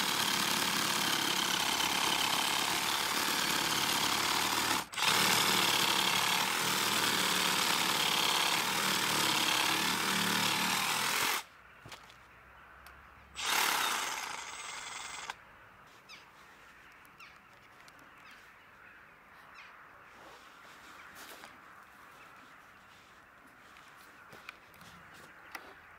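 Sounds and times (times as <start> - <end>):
reciprocating saw cutting a log: 0.0 - 11.4, 13.4 - 15.3.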